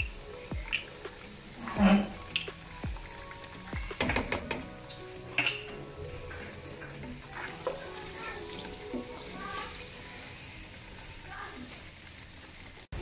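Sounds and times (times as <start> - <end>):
light sizzle of frying: 0.0 - 13.0.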